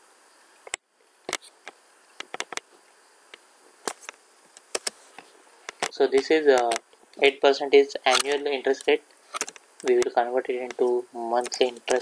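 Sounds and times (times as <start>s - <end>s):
faint background hiss: 0.0s - 12.0s
mouse and keyboard clicks: 3.9s - 5.0s.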